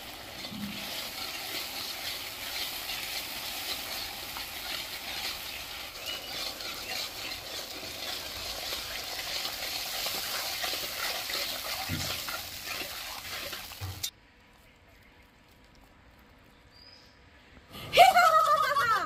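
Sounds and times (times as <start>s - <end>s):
food sizzling in hot oil: 0.0s - 14.1s
spatula scraping wok: 0.0s - 14.1s.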